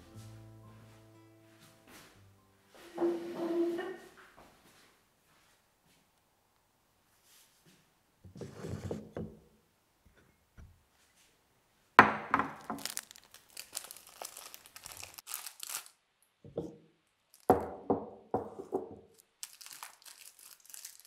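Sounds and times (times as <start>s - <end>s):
foil packet crinkling: 12.6s - 16.0s, 17.3s - 17.5s, 19.2s - 21.0s.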